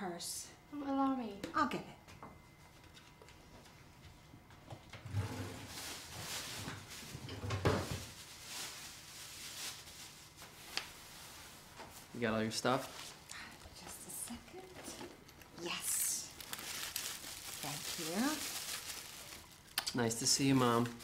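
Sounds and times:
drawer sliding open and shut: 5.0s - 5.7s.

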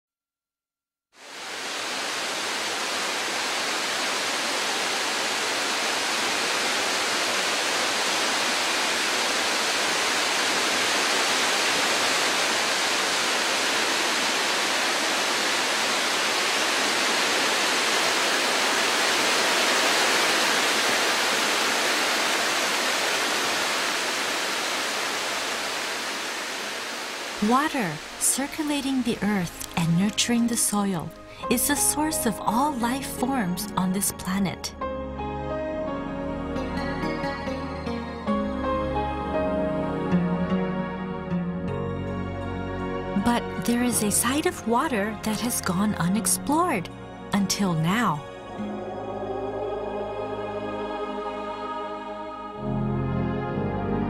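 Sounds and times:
waterfall pouring into pool: 1.2s - 28.2s.

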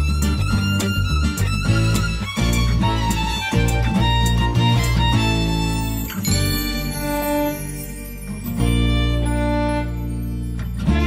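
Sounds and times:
steady beat: 0.0s - 5.7s
bass notes: 0.0s - 11.0s
violin melody: 0.0s - 11.0s.

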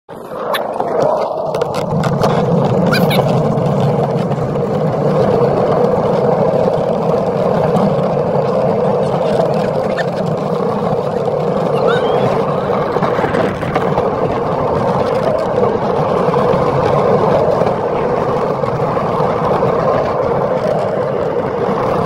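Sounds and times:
cart wheels rumbling on pavement: 0.1s - 22.0s.

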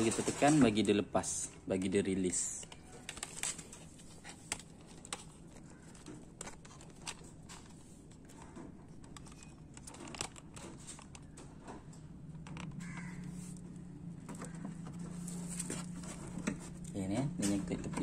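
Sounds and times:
plastic clicks and rustling: 0.0s - 18.0s
low hum: 11.5s - 18.0s.

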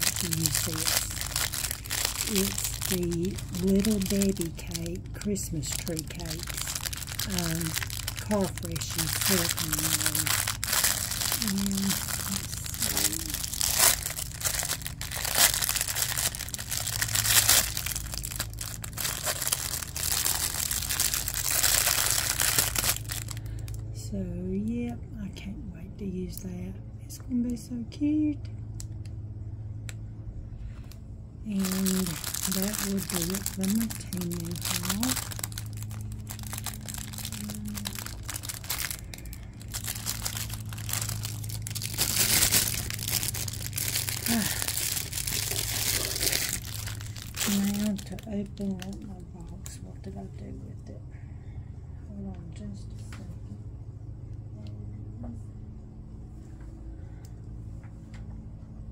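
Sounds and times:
plastic bag crinkling: 0.0s - 23.8s, 31.5s - 49.8s.

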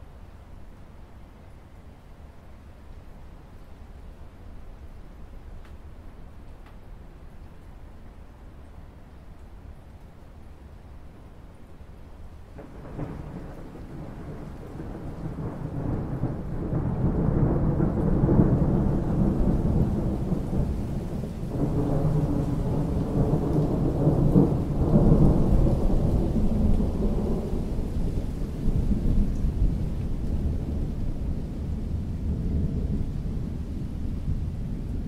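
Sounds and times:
rain falling on water: 0.0s - 35.0s
thunder rumbling: 12.6s - 35.0s.

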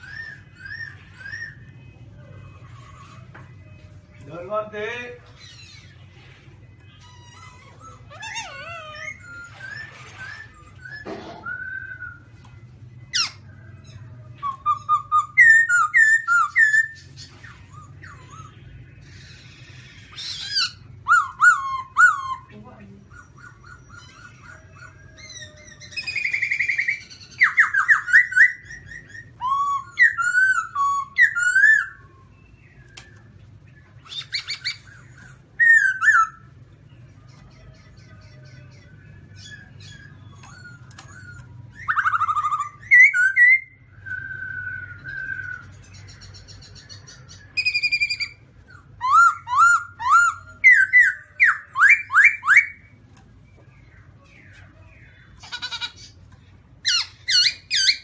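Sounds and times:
bird singing whistled notes: 0.0s - 2.0s, 7.0s - 18.8s, 38.9s - 53.0s.

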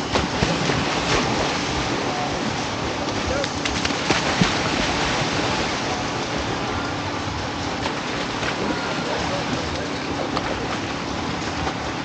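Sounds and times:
wind: 0.0s - 12.0s
faint crowd voices: 8.4s - 11.1s.

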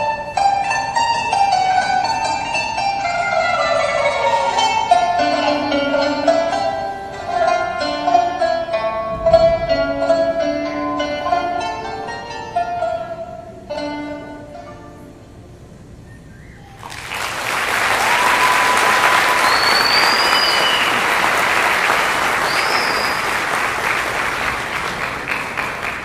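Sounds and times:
plucked-string dance music: 0.0s - 15.2s
high whistles: 16.0s - 24.1s
audience applause: 16.8s - 26.0s.

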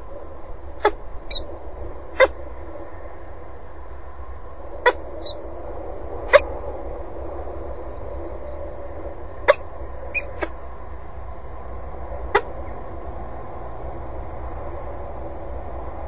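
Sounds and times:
steady low hum: 0.0s - 16.0s
falcon call notes: 2.2s - 2.4s.

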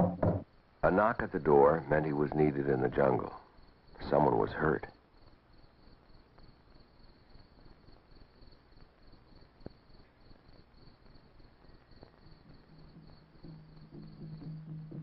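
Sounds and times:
crickets chirping: 0.4s - 15.0s.

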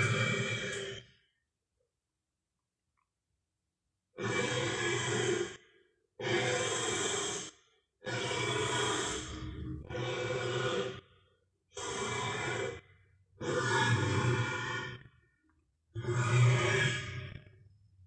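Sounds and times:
breathy growling calls: 8.1s - 15.4s, 16.0s - 17.6s.

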